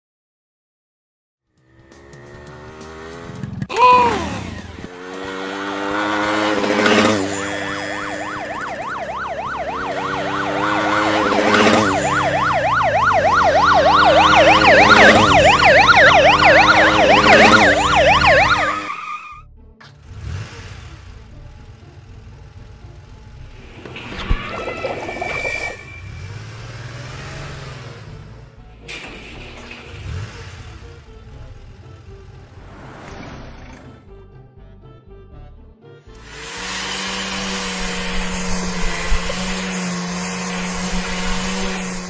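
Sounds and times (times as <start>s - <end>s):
steady drone: 5.6s - 18.8s, 36.1s - 42.0s
police siren yelping: 6.8s - 19.4s.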